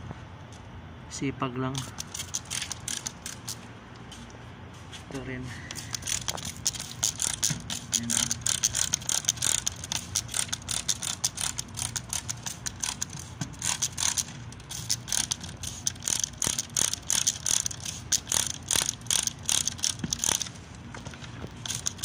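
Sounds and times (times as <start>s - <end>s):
spray bottle squirting: 1.8s - 3.7s, 5.7s - 20.5s, 21.4s - 22.0s
spray trigger clicks: 5.7s - 20.5s.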